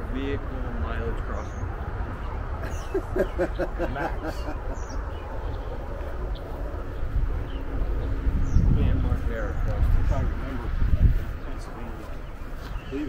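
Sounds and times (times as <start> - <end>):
wind rumble on microphone: 0.0 - 13.0
man laughing: 2.6 - 5.1.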